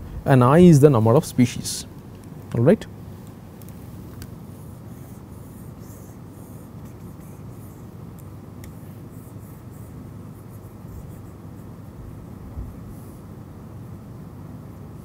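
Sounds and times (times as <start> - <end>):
steady low hum: 0.0 - 15.0
stylus scratching on tablet: 4.5 - 8.0, 8.7 - 12.0.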